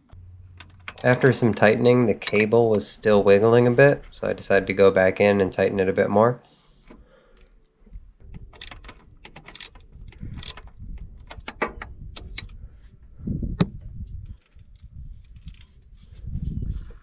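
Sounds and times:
metal tools clicking: 0:02.2 - 0:02.8.

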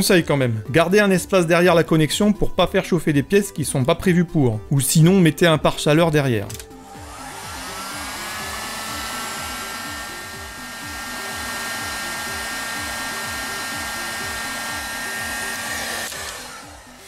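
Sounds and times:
heat gun blowing hot air: 0:06.8 - 0:17.0.

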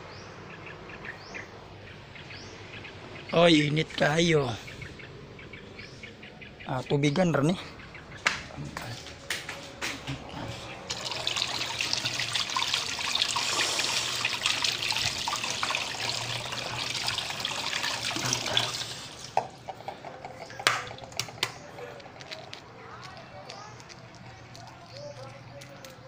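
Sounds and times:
eggs knocking on tiled counter: 0:19.4 - 0:21.6.

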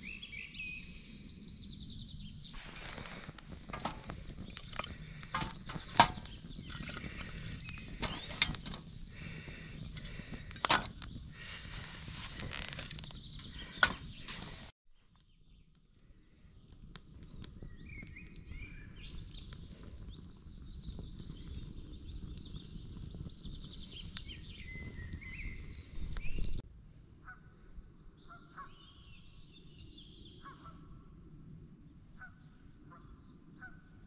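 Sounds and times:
wood fire crackling: 0:01.8 - 0:26.6
birds calling: 0:02.6 - 0:14.6.

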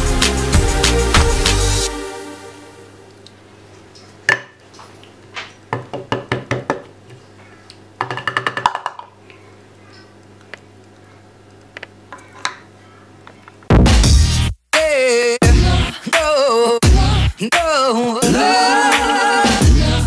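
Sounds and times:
plastic cup tapping on plate: 0:08.0 - 0:09.1.

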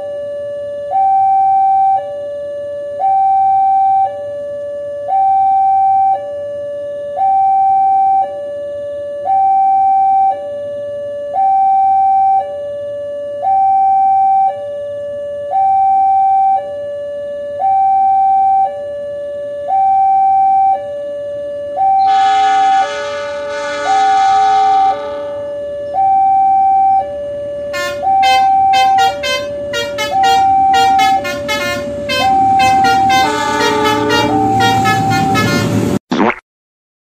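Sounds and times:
level crossing alarm two tones: 0:21.8 - 0:27.2, 0:27.8 - 0:35.5
locomotive horn blasting: 0:21.9 - 0:26.1, 0:27.7 - 0:36.0.

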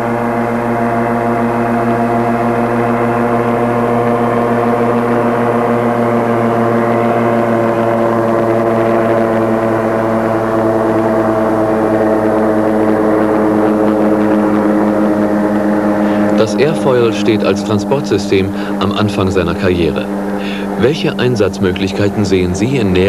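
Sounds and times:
petrol engine and propeller drone: 0:00.0 - 0:23.0.

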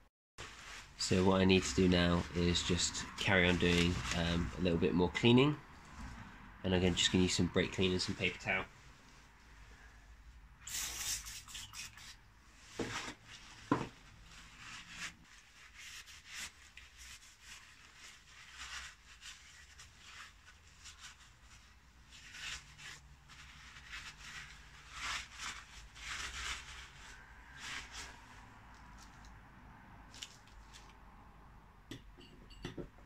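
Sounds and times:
paper towel wiping metal parts: 0:00.4 - 0:04.9, 0:10.7 - 0:28.4.

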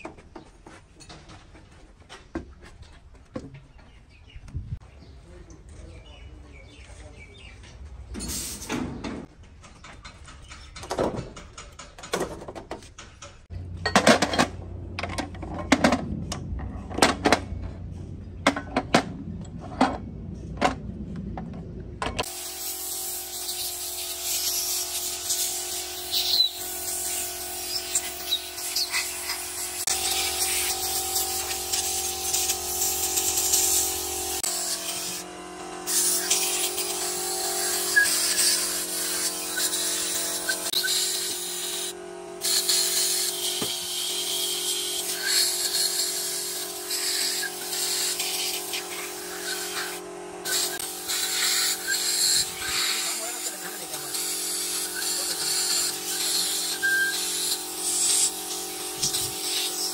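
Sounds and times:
power tool whining: 0:22.2 - 0:59.9.

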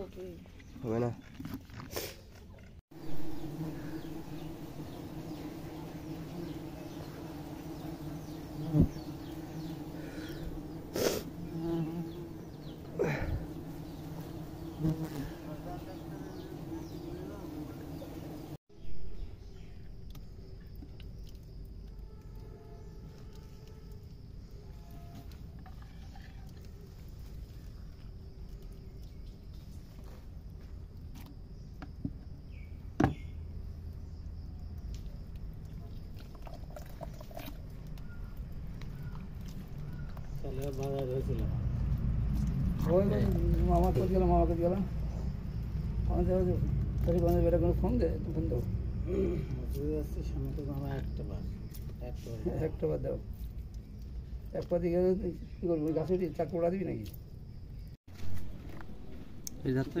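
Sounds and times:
bees buzzing: 0:03.0 - 0:18.6.

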